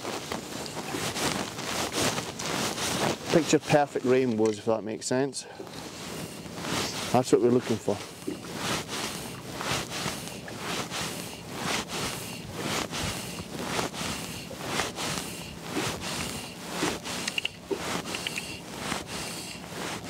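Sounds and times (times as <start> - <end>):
wind: 0.0 - 20.0
wavelets slapping boat hull: 5.8 - 20.0.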